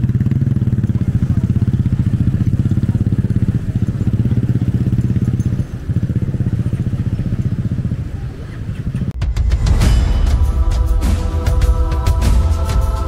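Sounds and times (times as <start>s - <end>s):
helicopter rotor throbbing: 0.0s - 13.0s.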